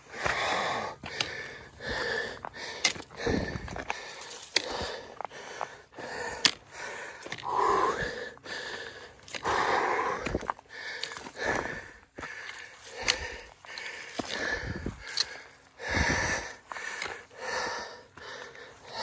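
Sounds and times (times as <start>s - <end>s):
footsteps on dirt and stones: 0.0s - 19.0s
person breathing heavily: 0.0s - 19.0s.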